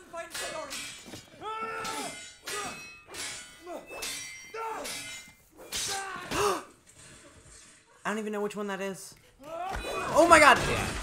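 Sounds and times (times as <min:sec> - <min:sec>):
steel blades clanging: 0:00.2 - 0:07.2
men grunting and shouting: 0:00.4 - 0:06.9.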